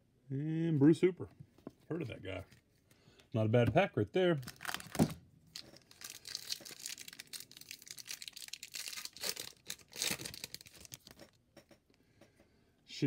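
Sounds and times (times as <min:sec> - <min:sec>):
wrapper tearing and crinkling: 0:04.4 - 0:11.2.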